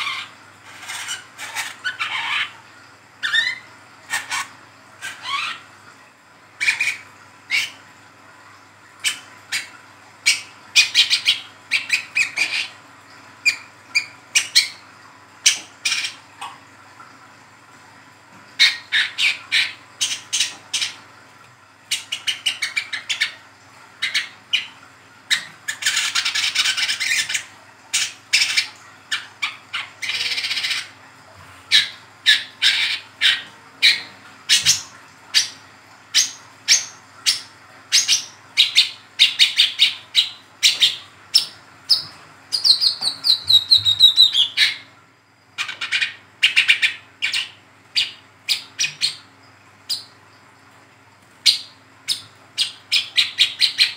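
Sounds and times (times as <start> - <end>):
bird chirping and twittering: 31.7 - 44.9, 51.4 - 53.9.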